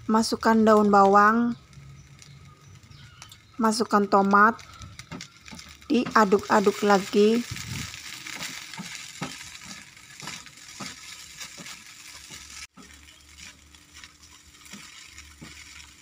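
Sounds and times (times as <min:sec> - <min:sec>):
rice sizzling in a wok: 0:00.0 - 0:16.0
spatula scraping a wok: 0:05.0 - 0:16.0.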